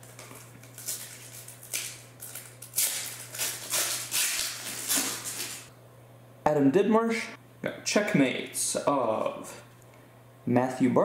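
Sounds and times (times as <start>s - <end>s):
foil wrapper crinkling and tearing: 0.0s - 5.7s.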